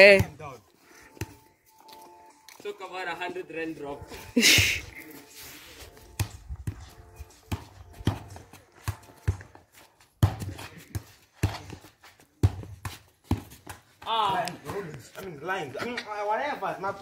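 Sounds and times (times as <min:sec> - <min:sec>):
ball kicked and bouncing on stone: 0:00.0 - 0:00.5, 0:05.9 - 0:16.2.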